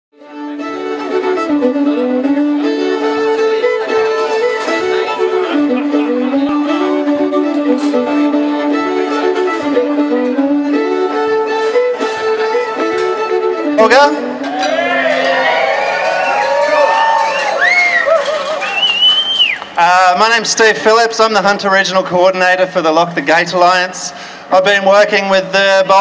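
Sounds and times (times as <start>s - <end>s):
two fiddles playing a tune: 0.2s - 14.6s.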